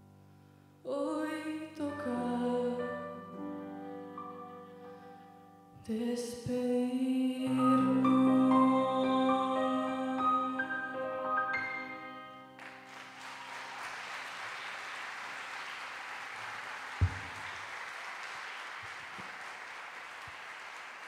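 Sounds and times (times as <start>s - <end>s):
audience applause: 12.6s - 21.0s
thump: 17.0s - 17.4s.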